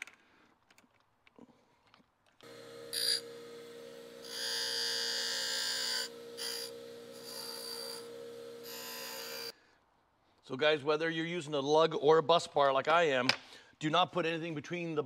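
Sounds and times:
harsh grinding noise: 0:02.4 - 0:09.5
power tool motor humming: 0:02.4 - 0:09.5.

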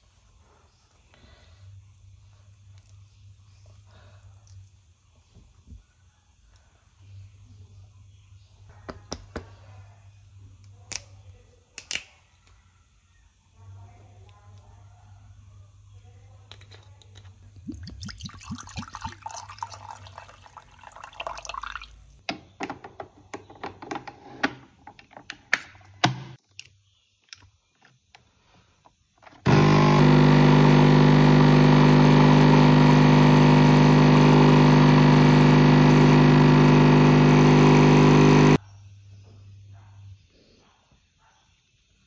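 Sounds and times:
coffee machine pump buzzing: 0:29.4 - 0:38.6.

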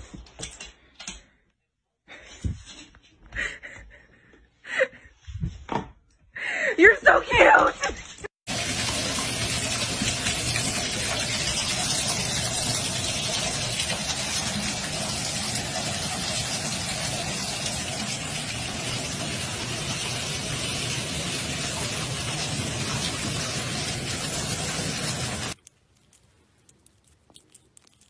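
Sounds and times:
tap water pouring into bathtub: 0:08.5 - 0:25.6.

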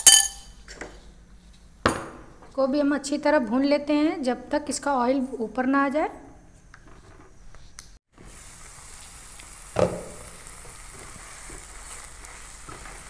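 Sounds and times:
marinade sizzling in a pan: 0:08.2 - 0:13.0.

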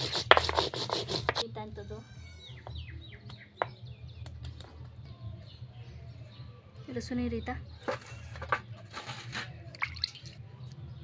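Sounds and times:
birds chirping: 0:01.4 - 0:11.0
stone roller grinding on stone slab: 0:07.8 - 0:09.6.

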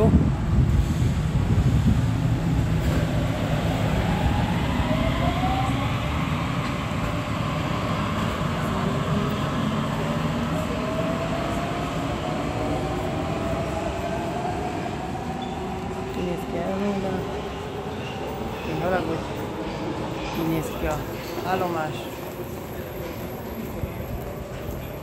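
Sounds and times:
metro train rumbling: 0:00.0 - 0:25.0.

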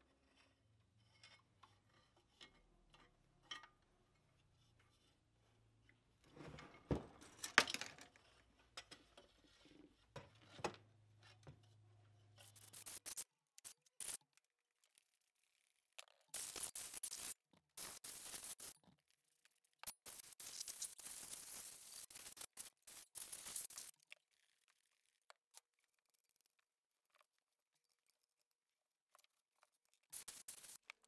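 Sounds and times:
scraping and rubbing metal: 0:12.2 - 0:14.2, 0:16.4 - 0:18.8, 0:19.8 - 0:23.9, 0:30.2 - 0:31.0.

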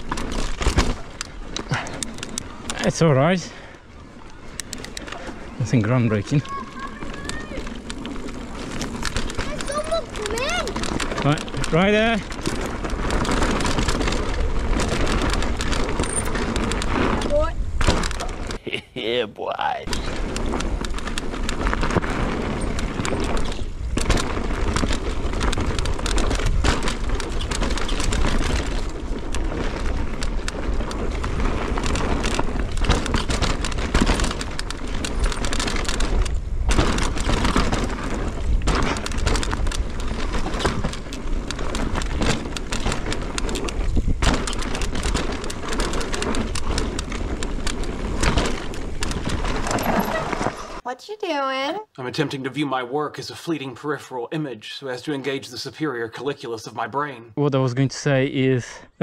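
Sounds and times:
bike tyres rumbling over dirt: 0:00.0 - 0:18.6, 0:19.8 - 0:50.8
bike rattling: 0:00.0 - 0:18.8, 0:19.8 - 0:50.8
wind noise on microphone: 0:06.4 - 0:18.6, 0:19.9 - 0:50.8.

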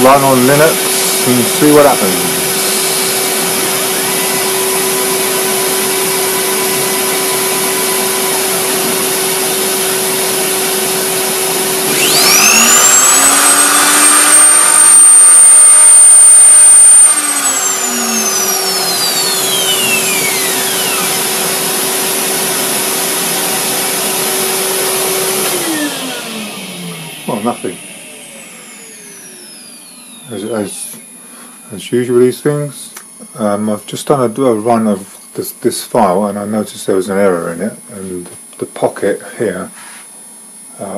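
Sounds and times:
router motor whine: 0:00.0 - 0:31.7
vacuum cleaner running: 0:00.0 - 0:32.7.

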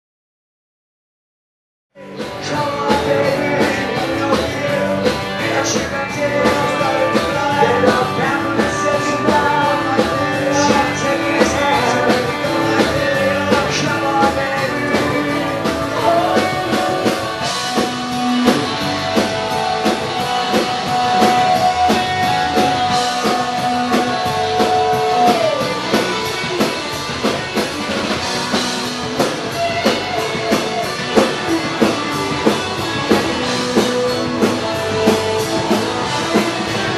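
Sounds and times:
person singing: 0:02.0 - 0:27.1
bass guitar: 0:02.0 - 0:36.9
drum kit: 0:02.0 - 0:36.9
electric guitars: 0:02.0 - 0:36.9.

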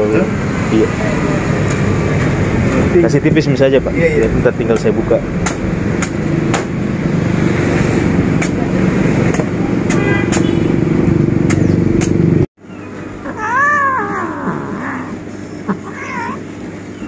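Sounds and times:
traffic hum: 0:00.0 - 0:17.0
machete chopping coconut: 0:05.4 - 0:06.8
cat meowing: 0:12.7 - 0:16.5.

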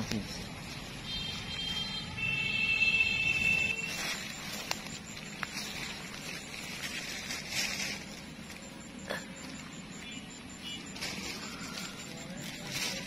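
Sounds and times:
steady high-pitched tone: 0:00.0 - 0:13.0
hand rustling through wet grass: 0:03.4 - 0:08.8.

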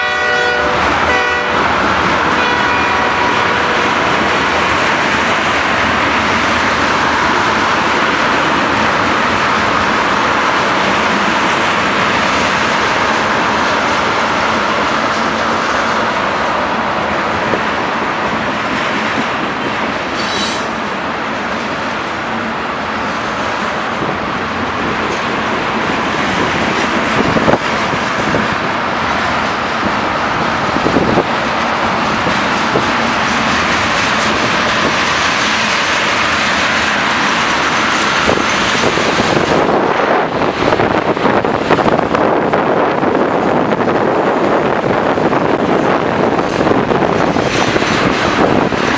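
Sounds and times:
train wheels rumbling on rails: 0:00.0 - 0:48.9
high squeal: 0:20.2 - 0:20.7.

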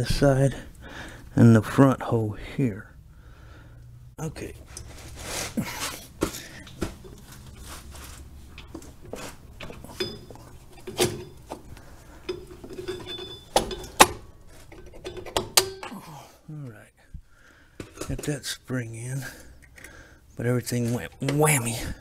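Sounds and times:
metal clinks of brake parts: 0:08.5 - 0:15.9.

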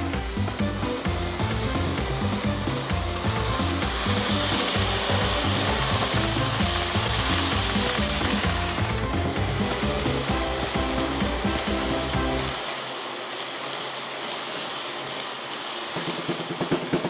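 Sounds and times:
background music: 0:00.0 - 0:12.7
model train rattling on track: 0:00.2 - 0:17.0.

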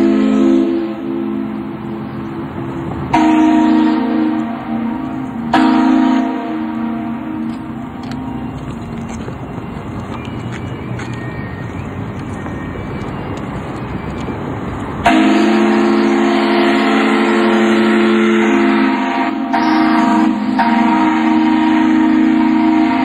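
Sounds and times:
ship's steam whistle chord: 0:00.0 - 0:08.6, 0:15.0 - 0:23.0
steady background noise: 0:00.0 - 0:23.0.

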